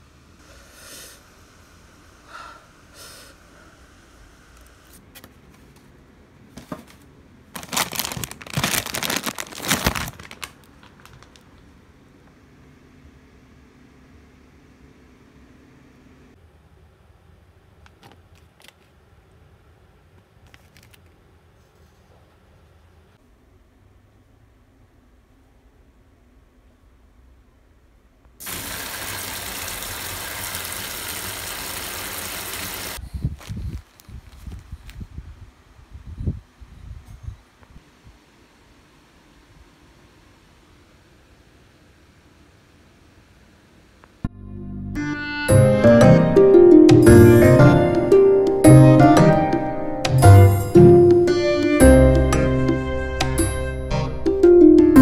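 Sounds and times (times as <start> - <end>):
plastic wrappers crinkling: 6.6 - 11.7
tap water running into sink: 28.4 - 33.0.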